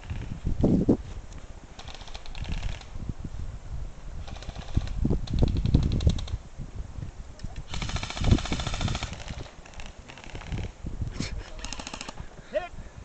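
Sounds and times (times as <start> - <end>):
airsoft rifle firing bursts: 1.8 - 2.9, 7.7 - 10.6.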